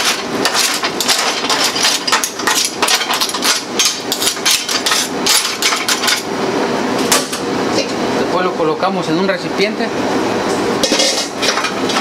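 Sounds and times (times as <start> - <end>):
rocks clattering on metal grate: 0.0 - 6.2
steady hum: 0.0 - 12.0.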